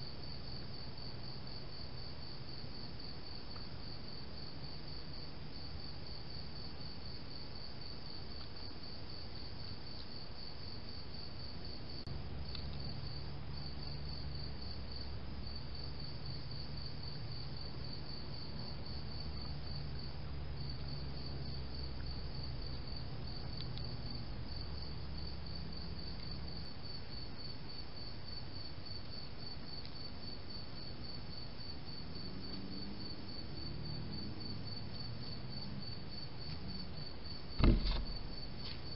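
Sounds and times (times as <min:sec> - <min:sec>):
crickets chirping: 0:00.0 - 0:38.9
low hum: 0:37.6 - 0:38.6.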